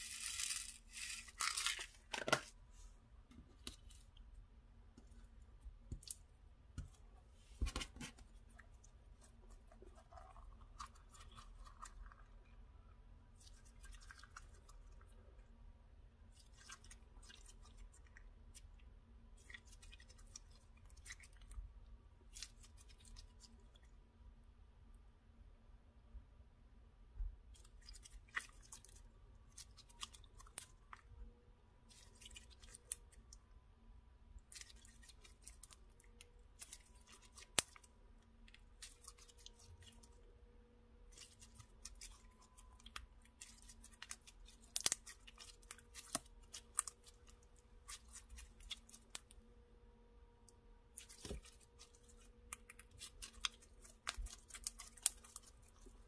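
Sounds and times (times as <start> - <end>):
slime squeezed crackling and popping: 41.2 - 49.3, 51.0 - 55.8.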